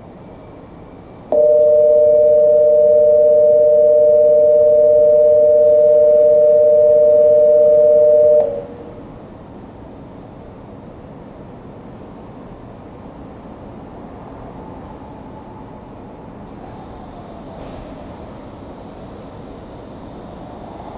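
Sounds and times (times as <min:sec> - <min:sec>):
electronic two-tone departure bell: 0:01.3 - 0:08.8.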